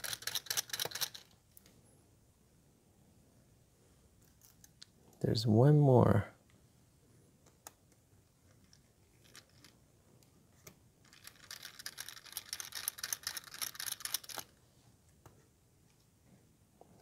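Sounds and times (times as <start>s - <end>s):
screwdriver ticking and scratching: 0.0s - 1.3s, 11.1s - 14.5s.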